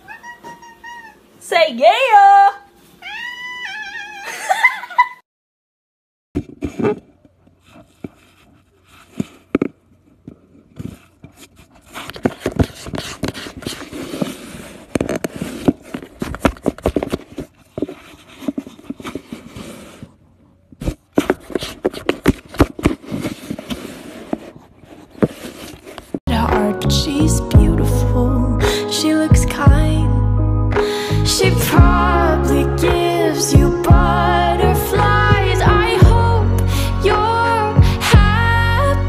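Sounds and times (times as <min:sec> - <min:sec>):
cat scratching cardboard: 0:10.8 - 0:20.2, 0:20.8 - 0:26.1.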